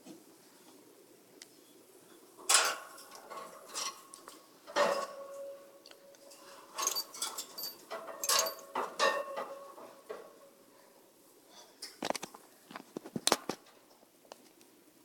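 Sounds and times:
metal birdcage clinking: 6.2 - 10.2.

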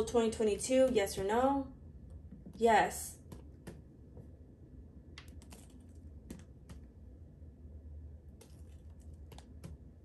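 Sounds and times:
low room hum: 0.0 - 10.0
faint clicks and taps: 2.0 - 4.4, 5.1 - 7.0, 8.4 - 10.0.

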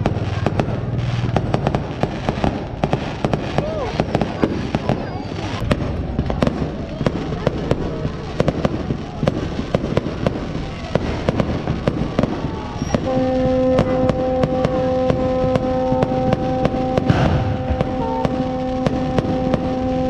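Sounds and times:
fireworks bangs and crackles: 0.0 - 20.0
steady horn tone: 12.9 - 20.0.

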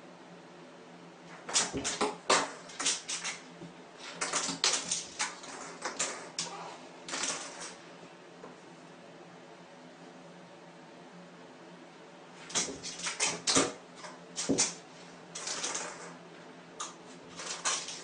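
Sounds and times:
cat claws scrabbling on bathtub: 1.4 - 7.8, 12.5 - 14.8, 16.8 - 18.0.

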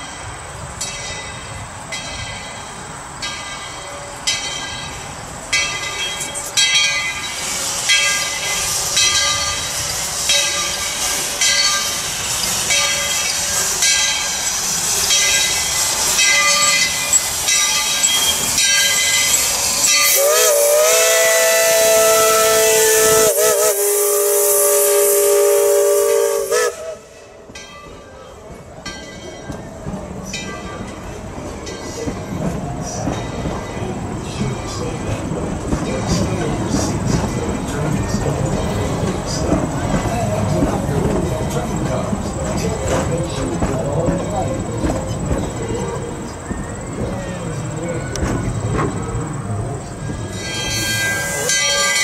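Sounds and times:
steam locomotive chuffing: 0.0 - 52.0
steam whistle blast: 20.0 - 27.2.

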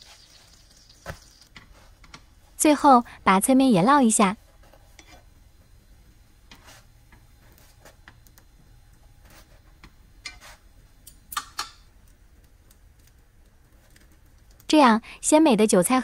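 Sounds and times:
chopsticks clicking on frying pan: 11.0 - 12.2.

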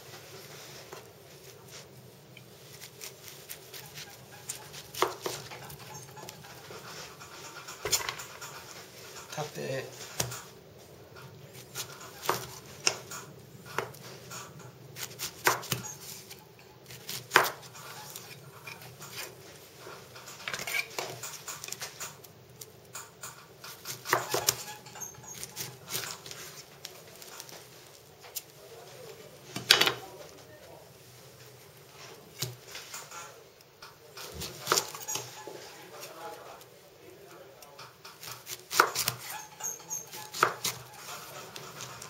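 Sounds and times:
knife cutting fruit: 2.4 - 10.5, 11.3 - 19.4, 20.1 - 28.5, 34.1 - 36.7, 37.6 - 42.0.

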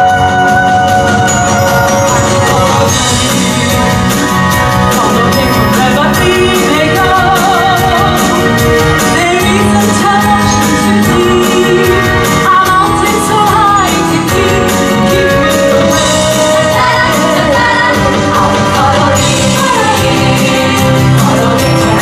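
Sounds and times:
band with steady beat: 0.0 - 22.0
woman singing pop tune: 4.8 - 22.0
women's chorus singing: 14.3 - 22.0.

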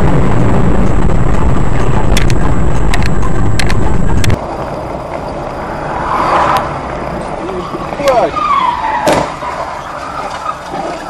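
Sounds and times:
car driving rumble: 0.0 - 11.0
road noise: 0.0 - 11.0
sharp clicks: 2.1 - 4.4.

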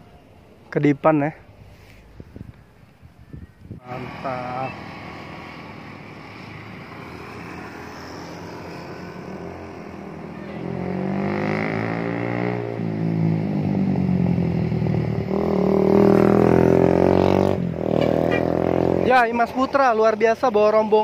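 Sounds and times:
motorcycles passing: 3.8 - 21.0
coach diesel engine passing: 3.9 - 19.2.

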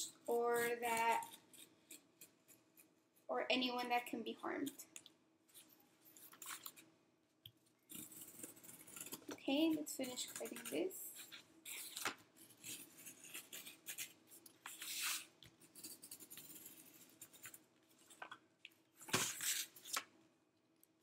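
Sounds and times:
blade cutting cardboard: 7.9 - 17.6
cardboard sheet scraping: 10.1 - 15.3.

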